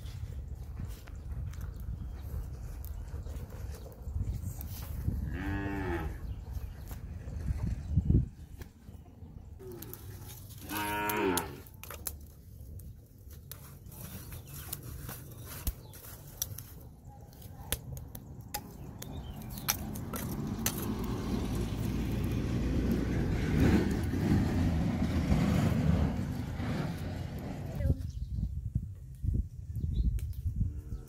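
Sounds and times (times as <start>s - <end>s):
charcoal crackling and knocking: 9.6s - 27.9s.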